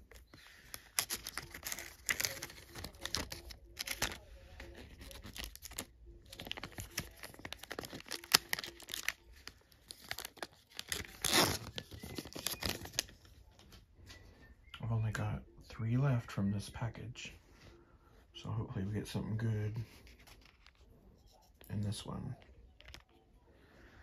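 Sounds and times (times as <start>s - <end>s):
foil wrapper crinkling: 0.0s - 13.2s.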